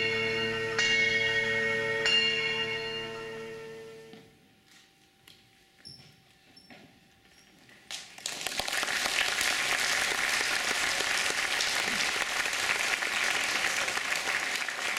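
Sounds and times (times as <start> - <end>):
audience applauding: 7.9 - 14.9.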